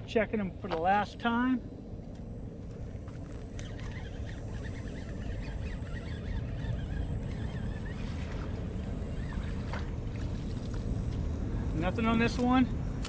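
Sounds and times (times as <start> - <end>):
steady low rumble: 0.0 - 13.0
birds calling: 2.7 - 11.6.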